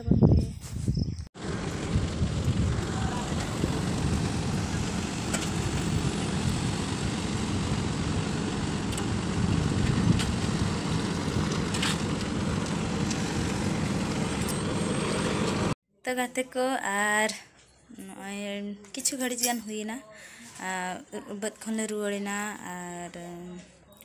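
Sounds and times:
heavy diesel machinery rumble: 0:01.4 - 0:15.8.

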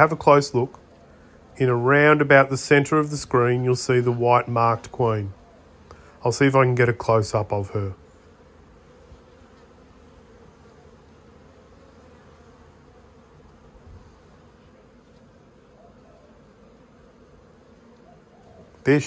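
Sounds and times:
honey bees humming: 0:00.0 - 0:19.0.

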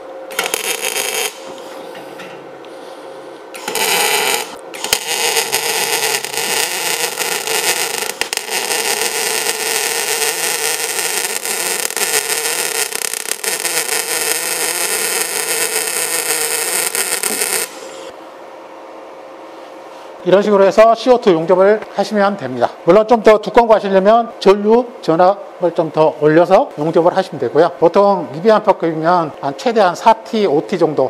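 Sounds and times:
welding arc crackling: 0:00.3 - 0:01.6, 0:03.6 - 0:18.1.

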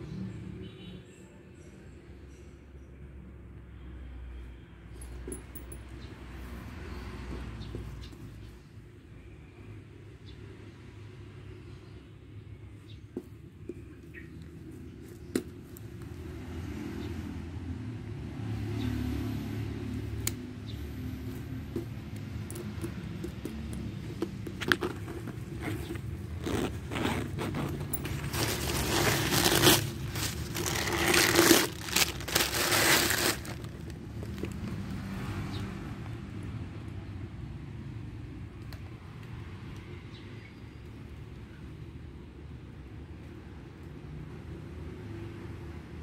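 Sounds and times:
leather bag scraping and rustling: 0:21.3 - 0:34.8
metal bag hardware clicks: 0:21.7 - 0:32.2.

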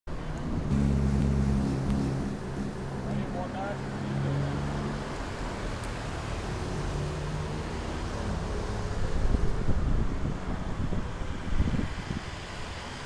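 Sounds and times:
low vehicle rumble: 0:00.1 - 0:12.8
wind buffeting microphone: 0:08.7 - 0:12.7.

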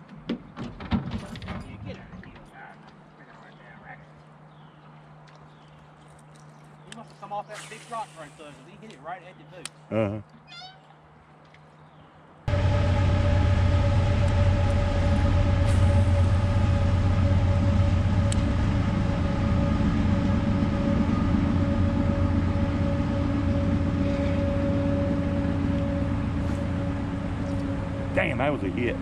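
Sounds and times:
boat engine humming: 0:12.5 - 0:29.0.

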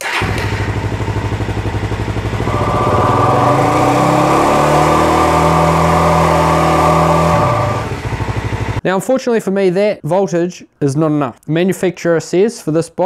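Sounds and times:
motorcycle engine idling and revving: 0:00.0 - 0:08.8.

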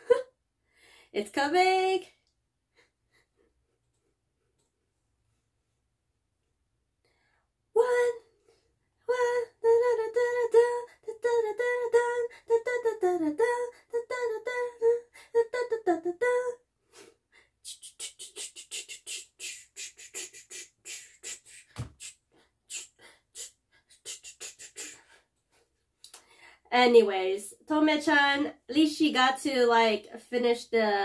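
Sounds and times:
woman vocalizing: 0:17.7 - 0:22.1, 0:22.7 - 0:25.1
beatbox mouth clicks: 0:17.7 - 0:25.1.

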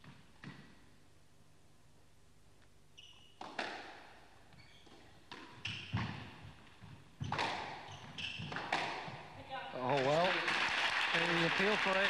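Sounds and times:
court shoes squeaking: 0:02.9 - 0:09.3
squash ball hitting rackets and walls: 0:03.2 - 0:09.4.

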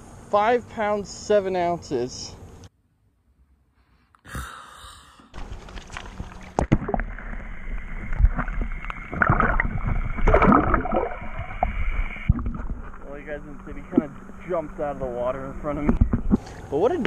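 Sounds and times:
water sloshing and splashing: 0:05.4 - 0:16.4.

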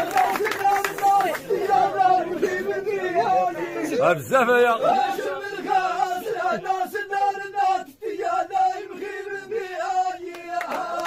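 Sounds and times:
men chanting sung poetry: 0:00.0 - 0:11.0.

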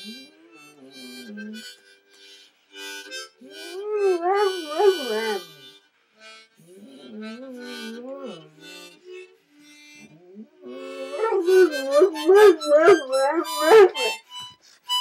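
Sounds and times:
harmonica chords: 0:00.0 - 0:15.0
dog howling: 0:03.7 - 0:05.5, 0:10.3 - 0:14.2.

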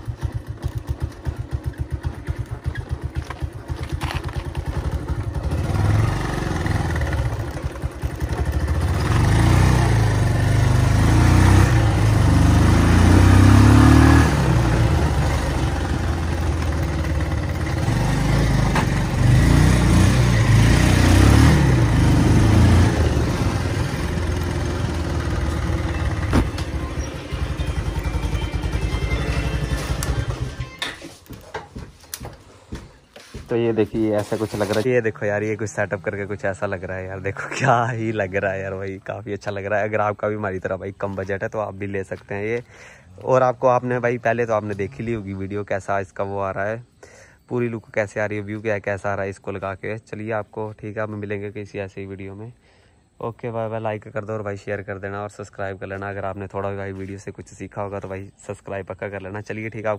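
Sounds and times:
motorcycle engine: 0:00.0 - 0:40.8.

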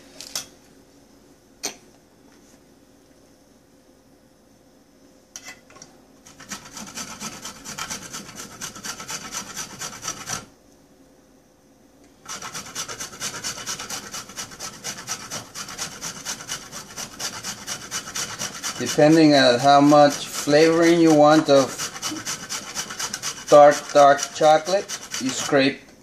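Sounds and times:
grating on metal grater: 0:06.3 - 0:10.5, 0:12.2 - 0:25.8.

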